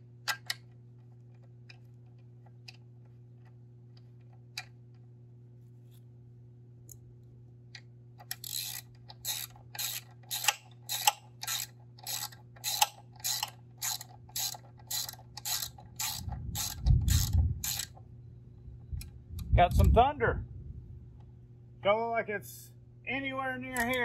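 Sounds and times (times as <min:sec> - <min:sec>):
ratchet wrench clicking: 0:08.2 - 0:17.9.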